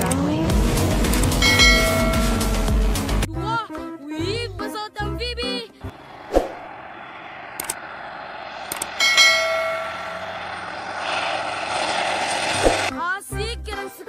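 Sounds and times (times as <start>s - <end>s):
propeller plane engine running: 0.0s - 3.3s, 5.8s - 13.0s
brief whine: 5.9s - 12.9s.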